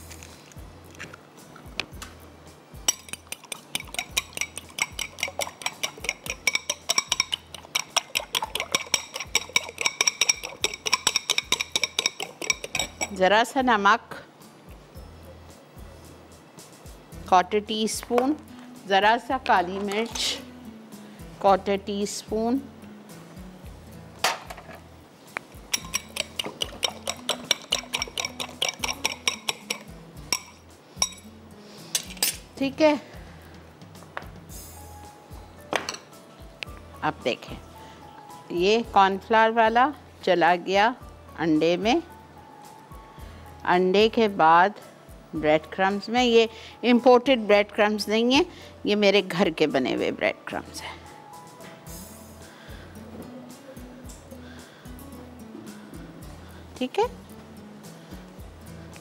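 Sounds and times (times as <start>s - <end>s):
spoon clinking against glass bowl: 2.9s - 13.2s, 25.7s - 31.3s.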